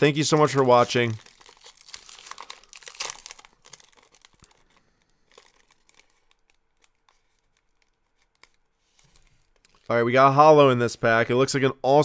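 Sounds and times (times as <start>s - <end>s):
plastic wrapper crinkling and tearing: 0.0s - 10.2s.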